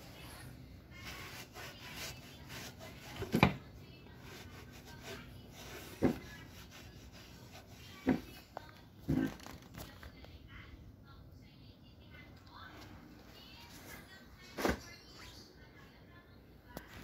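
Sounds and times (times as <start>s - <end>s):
cloth rubbing on metal: 0.9s - 3.4s, 4.1s - 8.4s.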